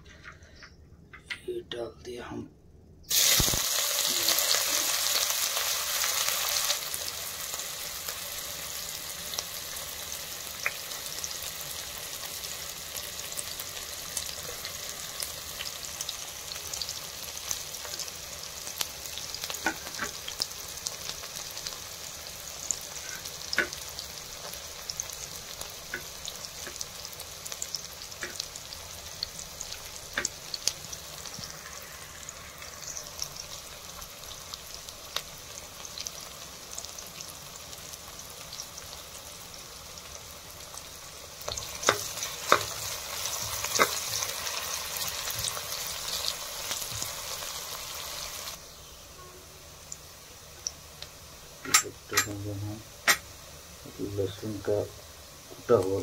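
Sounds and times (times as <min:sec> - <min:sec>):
oil pops and crackles: 0:03.1 - 0:03.7
onions sizzling in hot oil: 0:03.1 - 0:56.0.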